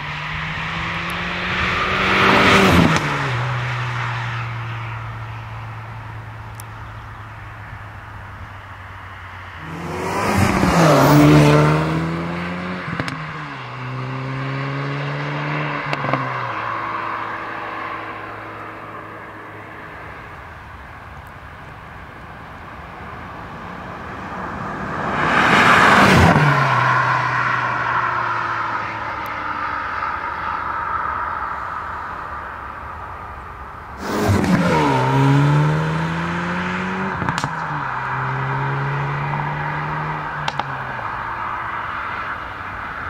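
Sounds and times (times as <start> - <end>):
car driving past at speed: 0.0 - 5.2, 9.5 - 20.3, 23.3 - 32.2, 34.0 - 42.4.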